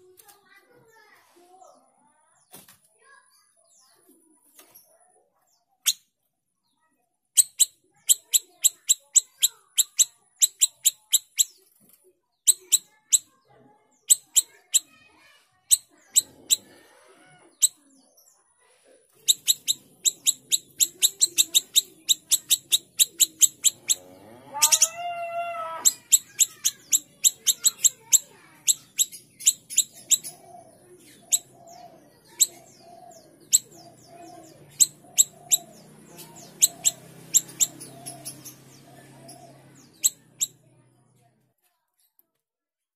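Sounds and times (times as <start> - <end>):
songbird chirping: 0.0 - 42.2
low drawn-out animal call: 16.1 - 17.5, 23.6 - 26.0.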